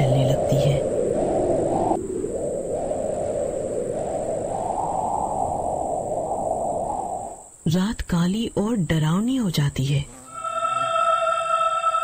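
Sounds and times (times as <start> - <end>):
strong wind blowing: 0.0 - 7.7.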